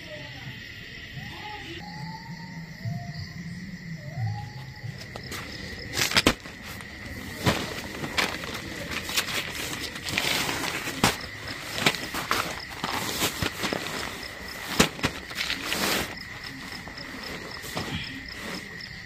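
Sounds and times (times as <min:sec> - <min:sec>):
tent fabric rustling: 0:04.8 - 0:19.0.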